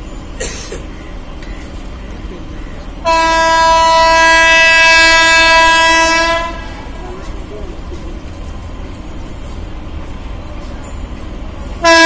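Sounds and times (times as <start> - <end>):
locomotive horn blast: 3.0 - 7.0, 11.8 - 12.0.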